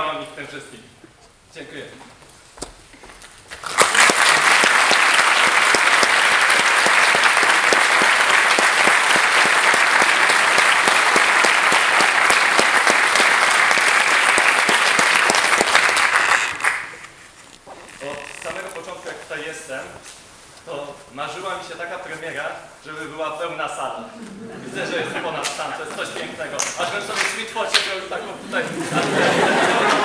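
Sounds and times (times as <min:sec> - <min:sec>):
audience applause: 0:03.6 - 0:17.1, 0:28.9 - 0:30.0.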